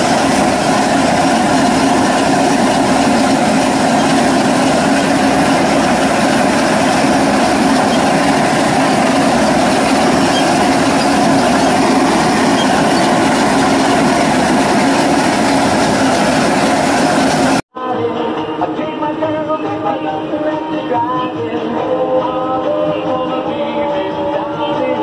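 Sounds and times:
tractor hay mower running: 0:00.0 - 0:17.6.

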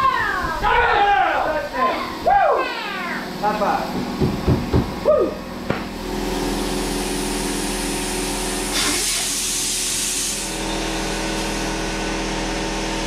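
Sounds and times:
steady machine hum: 0:00.0 - 0:13.0
short knock: 0:04.0 - 0:05.0
compressed air hissing: 0:05.9 - 0:11.7.

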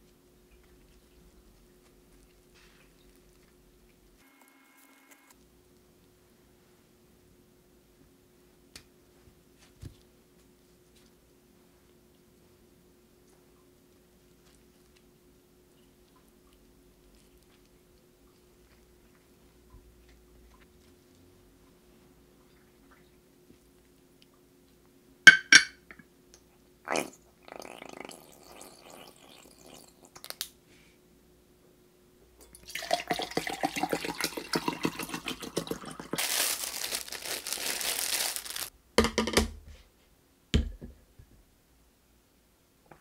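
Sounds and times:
soft rustling of leaf wrap: 0:00.0 - 0:04.6, 0:08.4 - 0:24.3, 0:36.1 - 0:38.7
water pouring into glass: 0:32.5 - 0:36.2.

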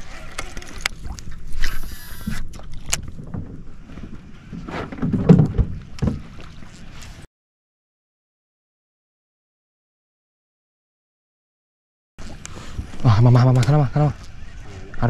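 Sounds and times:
knocks and bumps: 0:04.5 - 0:06.3.

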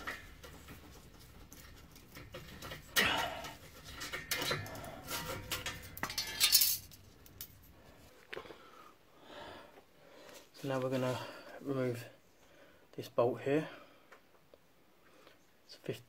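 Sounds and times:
metal flanges and bolts clinking: 0:00.0 - 0:07.8.

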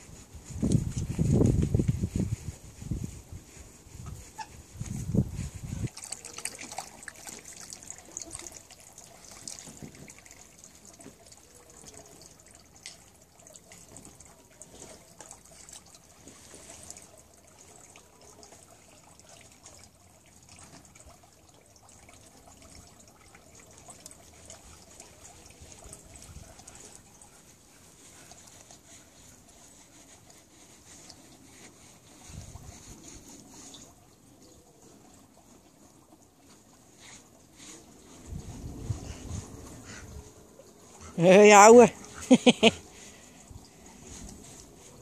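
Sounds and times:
dog lapping water: 0:05.6 - 0:45.0.

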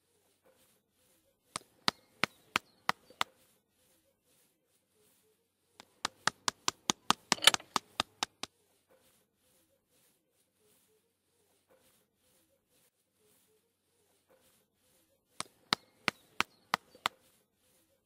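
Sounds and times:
sharp taps: 0:05.8 - 0:08.5, 0:15.4 - 0:17.2.

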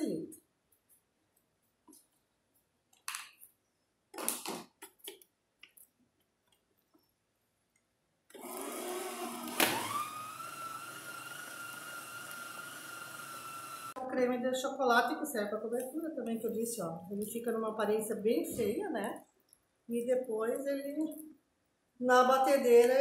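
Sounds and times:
stand mixer motor whine: 0:08.4 - 0:14.0.

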